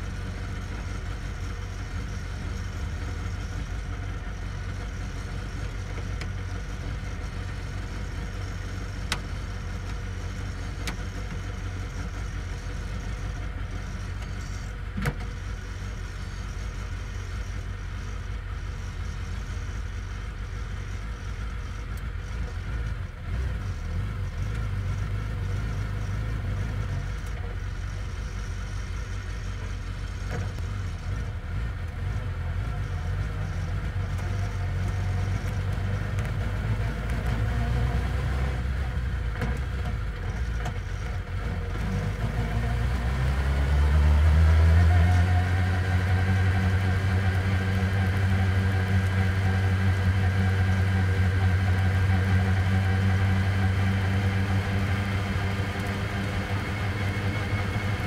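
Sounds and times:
race car engine idling: 0.0s - 37.6s.

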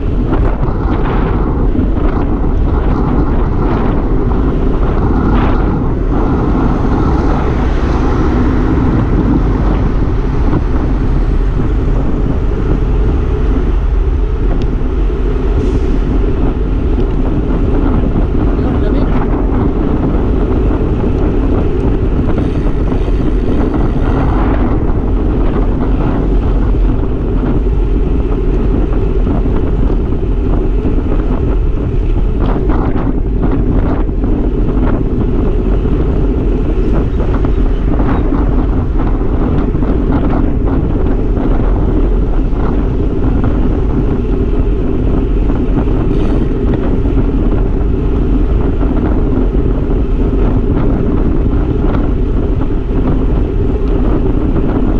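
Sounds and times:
bicycle road noise: 0.0s - 54.9s
wind buffeting microphone: 0.0s - 54.9s.

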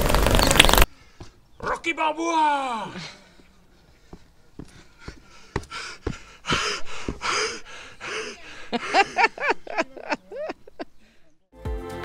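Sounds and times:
man panting hard: 2.9s - 9.7s
footfalls on stone: 3.4s - 7.4s.

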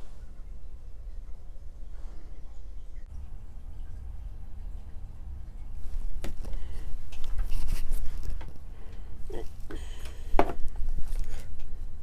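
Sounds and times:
low steady hum: 0.0s - 12.0s
small clicks taps and rustles: 5.6s - 9.0s.

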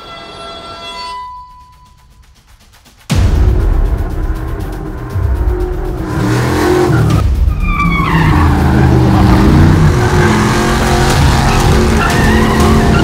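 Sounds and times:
truck engine revving hard: 5.9s - 13.0s
tires squealing: 6.0s - 13.0s.

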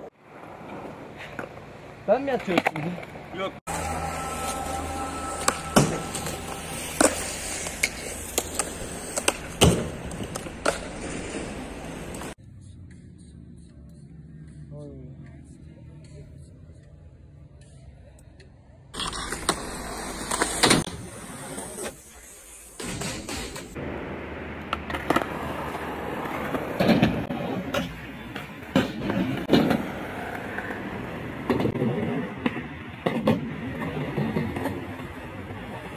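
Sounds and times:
skateboard wheels rolling on concrete: 0.0s - 35.9s
skateboard clacking on ground: 2.3s - 3.9s, 4.8s - 11.0s, 24.6s - 35.9s.

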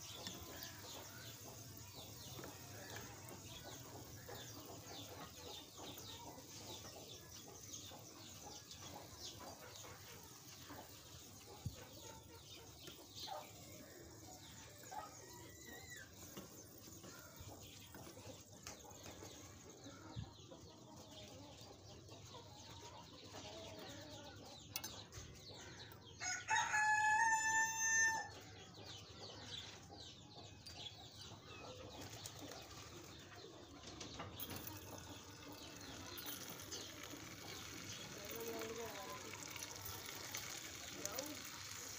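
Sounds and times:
faint chicken clucks: 0.0s - 41.8s
rooster crowing: 26.2s - 28.4s.

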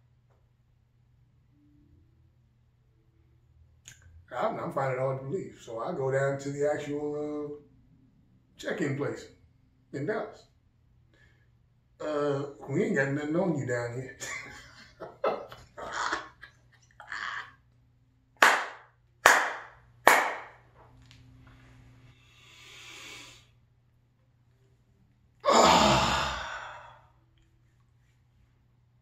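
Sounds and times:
man sighing loudly: 25.4s - 27.0s
man exhaling sharply: 25.4s - 27.1s.

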